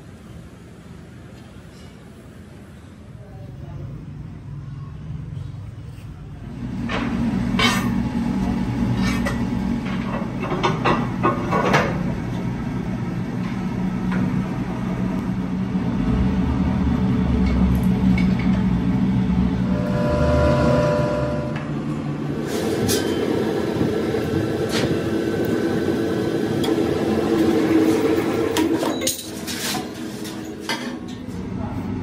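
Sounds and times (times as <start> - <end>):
metal clanks and knocks: 9.0 - 12.2
brief whine: 19.6 - 21.9.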